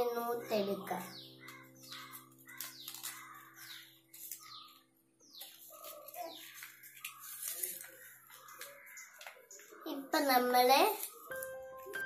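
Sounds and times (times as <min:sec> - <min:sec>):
paper rustling and crinkling: 0:01.4 - 0:09.8, 0:10.8 - 0:12.0.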